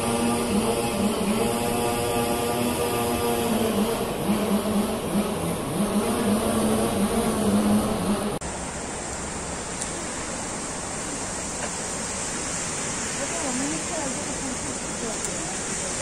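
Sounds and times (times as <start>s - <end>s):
motor droning: 0.0s - 8.4s
fountain water hissing: 0.0s - 16.0s.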